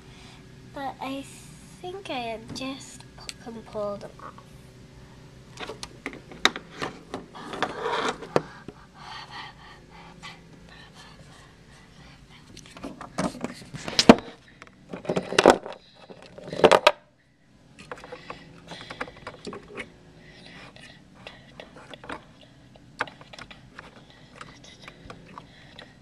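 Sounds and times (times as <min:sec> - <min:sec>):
breathy panting voice: 0:07.3 - 0:12.6, 0:18.0 - 0:26.0.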